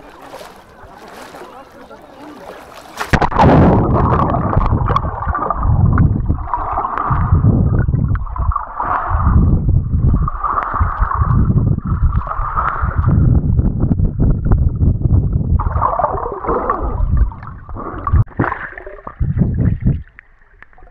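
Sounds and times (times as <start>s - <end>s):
muffled underwater rush and gurgle: 0.0s - 20.9s
plunge into water: 0.0s - 20.9s.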